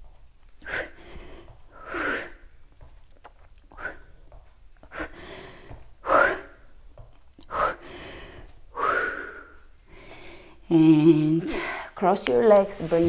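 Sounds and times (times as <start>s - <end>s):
woman breathing hard: 0.6s - 2.7s, 3.7s - 6.8s, 7.4s - 10.7s.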